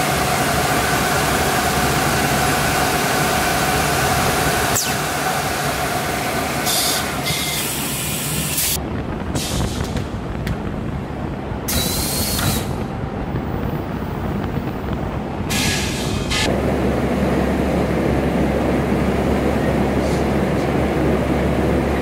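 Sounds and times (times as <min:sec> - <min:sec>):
air hissing: 0:06.6 - 0:10.1, 0:11.7 - 0:12.8, 0:15.5 - 0:16.5.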